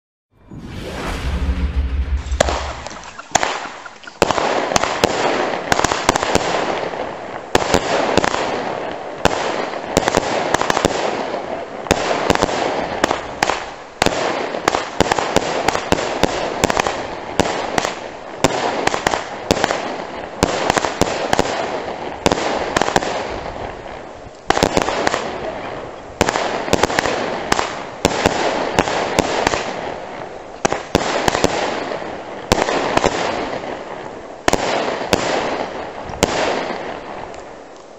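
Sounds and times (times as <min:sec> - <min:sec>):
firework battery shots: 0:00.5 - 0:06.9.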